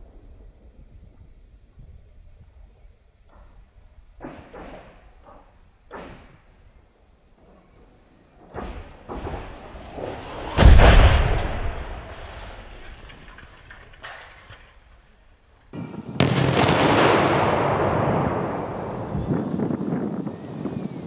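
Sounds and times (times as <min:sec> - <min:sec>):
low rumble: 0:00.0 - 0:04.2, 0:16.0 - 0:19.9
thuds: 0:04.2 - 0:06.5
loud sharp crack: 0:08.5 - 0:12.6, 0:16.2 - 0:19.2
tower crashing to the ground: 0:08.6 - 0:14.7.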